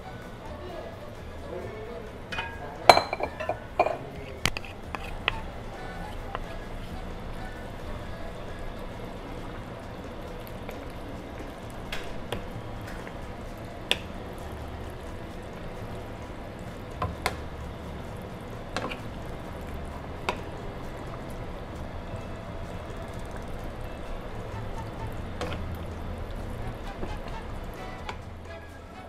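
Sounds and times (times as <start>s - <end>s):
spatulas knocking against pan: 2.2s - 5.4s.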